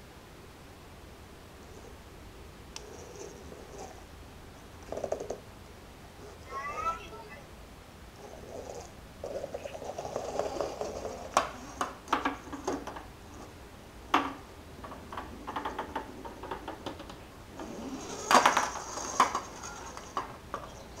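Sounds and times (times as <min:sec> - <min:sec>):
toy robot rolling on wooden floor: 0:02.8 - 0:04.0, 0:04.8 - 0:05.4, 0:08.2 - 0:13.5, 0:14.1 - 0:21.0.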